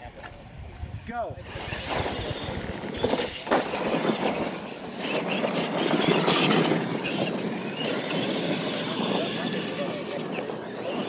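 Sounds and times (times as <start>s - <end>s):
electric motors whining: 1.4s - 11.0s
tires scrabbling on dirt: 1.5s - 11.0s.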